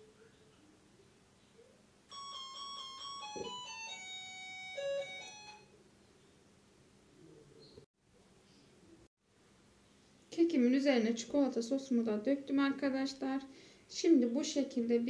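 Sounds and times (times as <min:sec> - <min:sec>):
electronic beeping jingle: 0:02.1 - 0:05.6.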